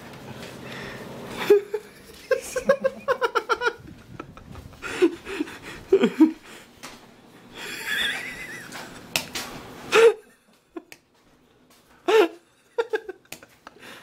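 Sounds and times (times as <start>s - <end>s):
person laughing: 1.3s - 6.7s, 7.6s - 9.1s, 9.9s - 11.0s, 12.0s - 14.0s.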